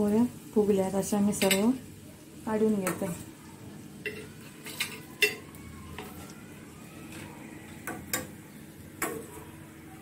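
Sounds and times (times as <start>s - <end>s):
steel spatula clinking on pan: 4.0s - 5.4s.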